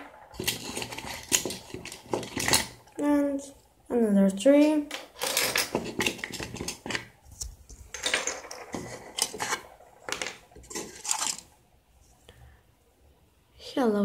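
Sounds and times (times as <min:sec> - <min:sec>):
small objects clinking on plastic: 0:00.0 - 0:02.9, 0:04.9 - 0:07.1, 0:07.9 - 0:11.5.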